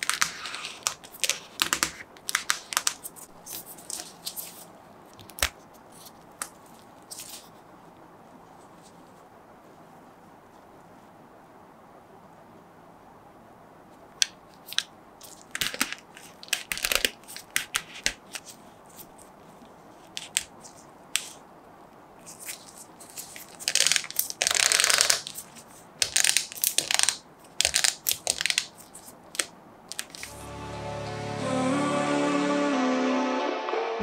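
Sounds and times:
vinyl figure rubbing and creaking: 0:00.0 - 0:02.1.

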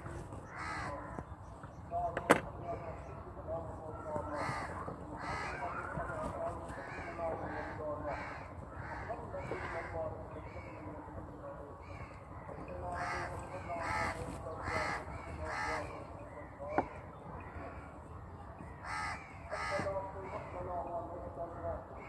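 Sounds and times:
low background noise: 0:00.0 - 0:22.0
crow cawing: 0:00.4 - 0:01.2, 0:04.2 - 0:10.9, 0:11.8 - 0:17.9, 0:18.7 - 0:20.6.

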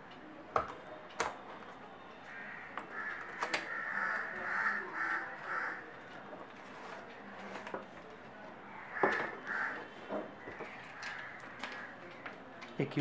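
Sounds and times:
crows cawing: 0:02.3 - 0:05.8, 0:08.7 - 0:12.0.

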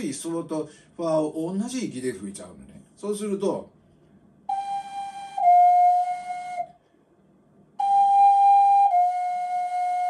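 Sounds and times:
ocarina notes: 0:04.5 - 0:06.8, 0:07.8 - 0:10.0.

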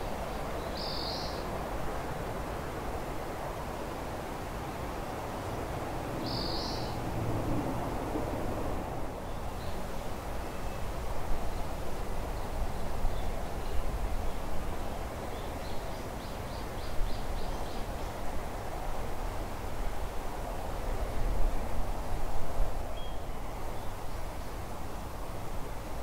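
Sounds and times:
wind rustling through trees: 0:00.0 - 0:26.0
small bird calling: 0:00.7 - 0:01.4.

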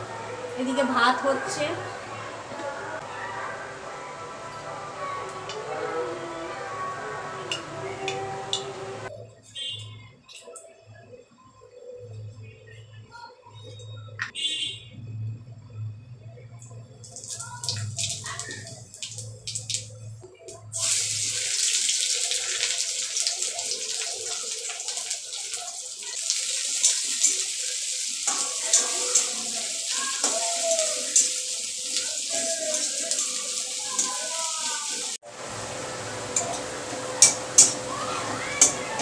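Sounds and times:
onions sizzling in oil: 0:17.0 - 0:39.0.

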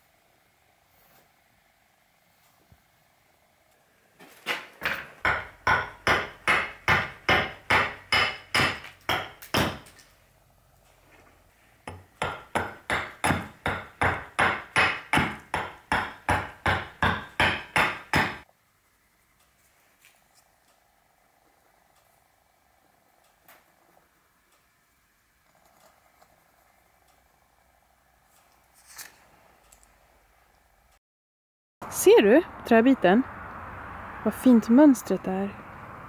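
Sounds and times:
axe chopping wood: 0:05.3 - 0:10.0, 0:11.9 - 0:18.4.

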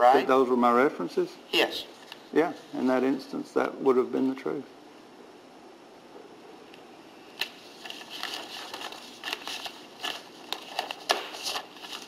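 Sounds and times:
paper rustling: 0:07.4 - 0:12.0.

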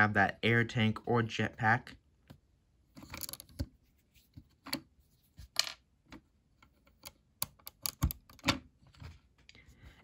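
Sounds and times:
plastic toy parts clicking: 0:06.8 - 0:08.6.

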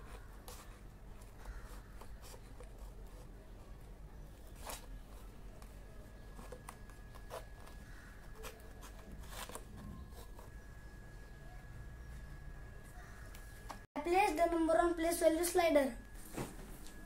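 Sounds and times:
paper rustling: 0:06.4 - 0:10.5.

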